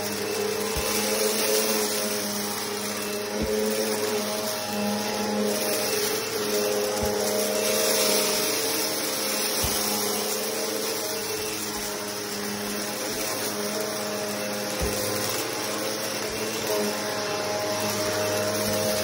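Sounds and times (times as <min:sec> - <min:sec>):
vacuum cleaner running on carpet: 0:00.0 - 0:19.0.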